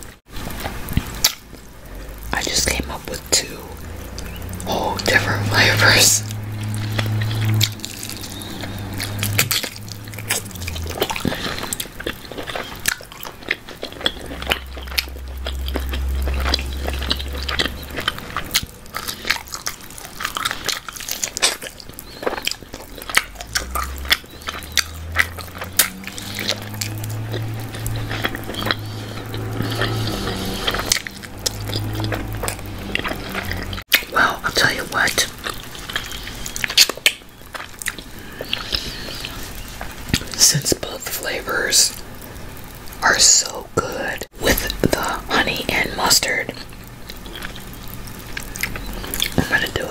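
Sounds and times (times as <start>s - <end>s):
biting and chewing: 0.0s - 43.0s, 44.5s - 49.9s
mouth clicks and smacks: 2.2s - 42.0s, 43.0s - 49.9s.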